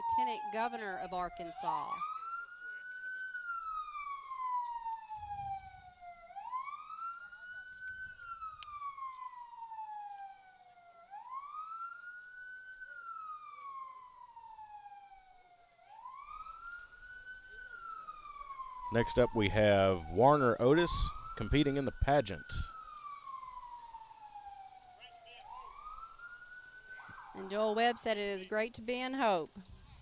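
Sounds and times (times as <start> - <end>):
siren wailing: 0.0 - 29.6.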